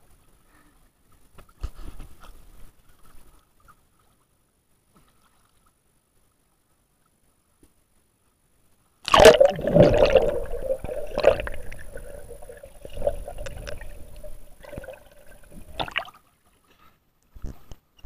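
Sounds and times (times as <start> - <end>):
splash into water: 9.1 - 14.0
steady hum: 9.1 - 16.1
underwater gurgling: 9.1 - 16.2.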